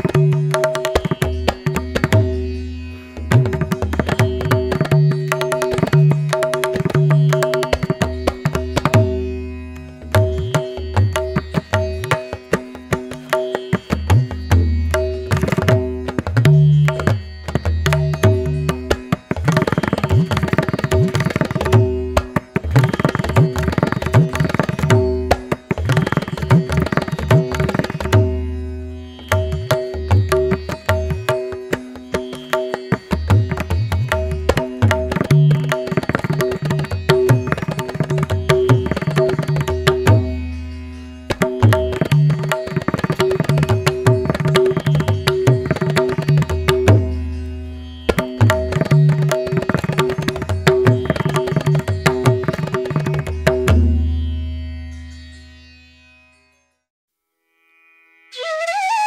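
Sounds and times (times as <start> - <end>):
fast hand drum pattern: 32.1 - 40.3, 41.4 - 47.1, 48.1 - 53.8.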